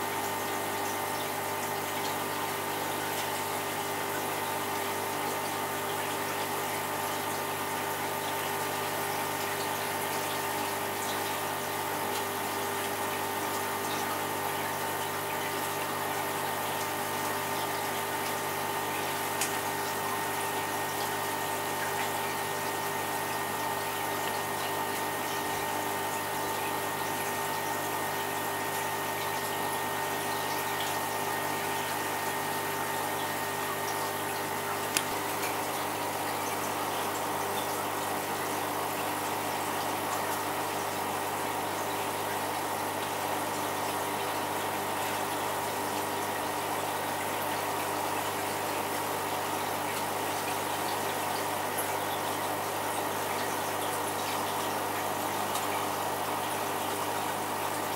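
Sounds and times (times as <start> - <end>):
aquarium pump humming: 0.0 - 57.9.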